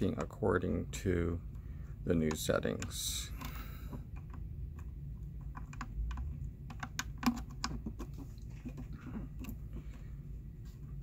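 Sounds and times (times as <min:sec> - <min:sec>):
low steady hum: 0:00.0 - 0:11.0
plastic clicks and rattles: 0:02.3 - 0:09.6.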